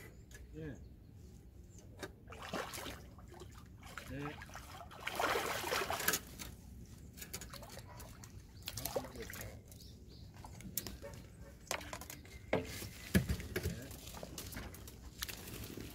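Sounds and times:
water lapping and splashing: 2.2 - 6.6, 7.3 - 10.6.

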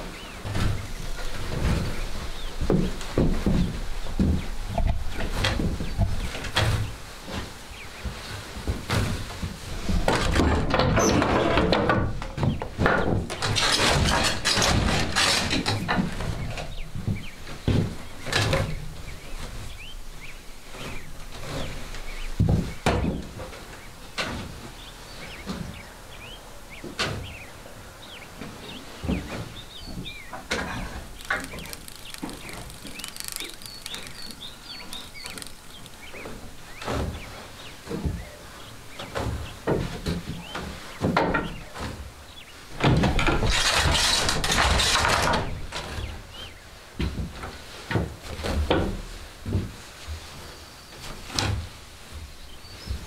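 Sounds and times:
small songbirds chirping: 0.0 - 9.4, 12.2 - 47.8, 50.2 - 53.0
wooden loom knocking and creaking: 0.0 - 19.6, 20.8 - 24.7, 28.4 - 42.2, 42.8 - 46.2, 47.0 - 49.8
wooden hand loom knocking: 0.6 - 6.8, 8.1 - 18.7
short squeaks of weaving: 13.2 - 16.8, 28.8 - 37.5, 43.1 - 46.2.

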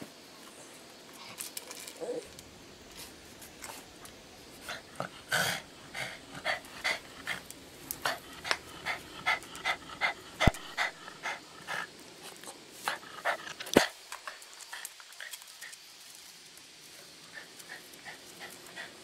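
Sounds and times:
dog panting: 4.6 - 11.9, 12.8 - 15.8, 17.2 - 19.0.

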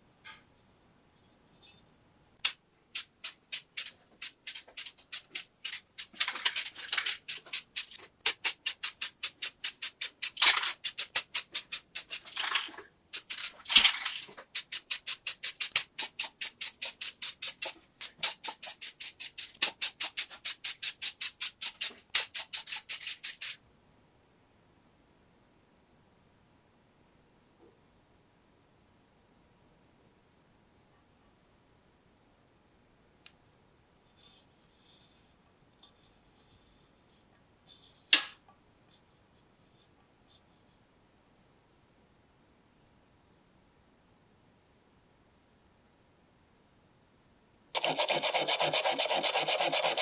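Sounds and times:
spray paint hissing: 2.4 - 12.4, 13.1 - 23.6, 47.8 - 50.0
spray can ball clacking: 2.4 - 23.6, 47.8 - 50.0.

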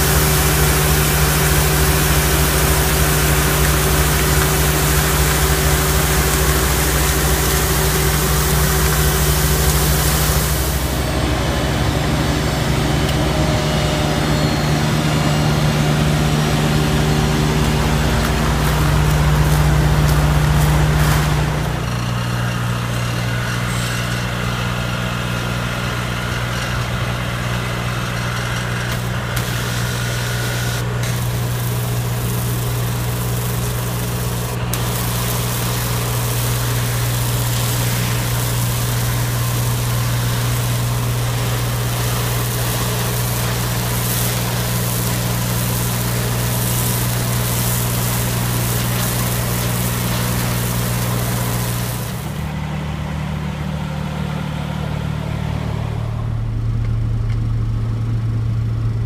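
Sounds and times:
pressure washer spray hissing: 0.0 - 11.1, 16.6 - 21.6, 29.3 - 52.5
diesel engine running: 0.0 - 59.0.

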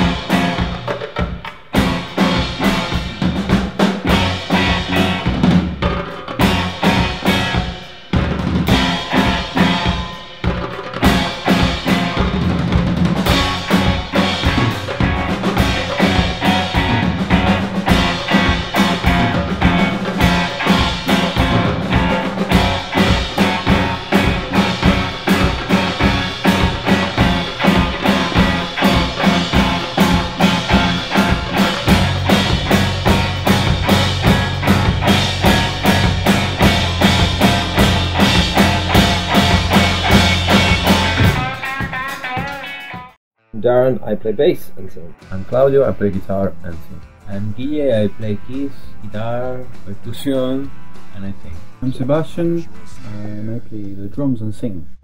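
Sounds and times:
drum kit steady beat: 0.0 - 43.2, 45.1 - 54.0
electric guitar: 0.0 - 43.2
bass guitar: 0.0 - 55.0.

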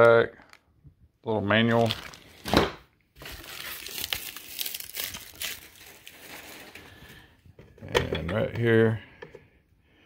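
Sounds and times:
plastic packaging crinkling: 1.6 - 7.2.

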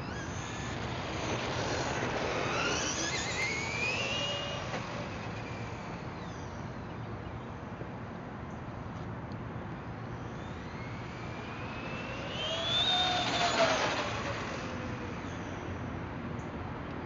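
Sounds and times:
toy car electric motor whining: 0.0 - 6.7, 10.0 - 15.8.

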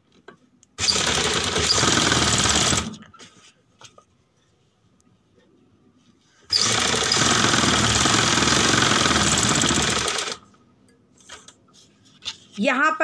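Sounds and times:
sewing machine stitching: 0.8 - 3.0, 6.5 - 10.4.

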